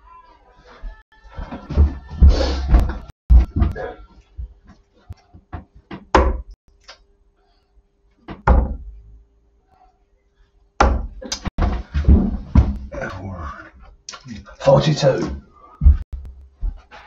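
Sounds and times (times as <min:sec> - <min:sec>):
darts striking dartboard: 0:10.8 - 0:11.1.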